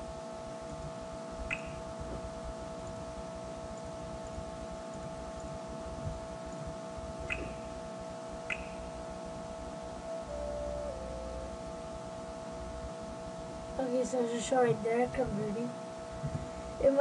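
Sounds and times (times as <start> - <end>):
electrical hum: 0.0 - 17.0
mouse button clicks: 8.5 - 8.8.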